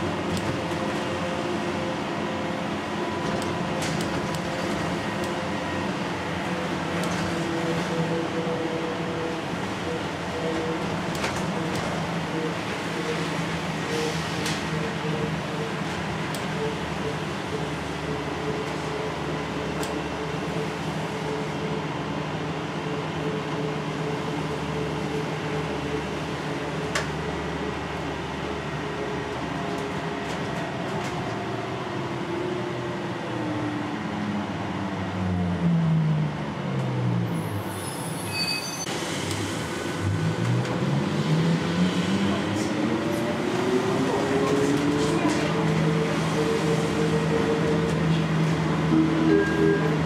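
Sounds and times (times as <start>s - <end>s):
brief high squeals: 37.5s - 38.9s.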